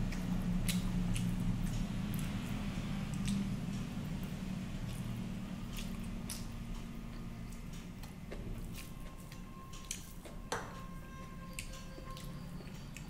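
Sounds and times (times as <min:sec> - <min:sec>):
wet chewing mouth smacks: 0:00.0 - 0:08.9.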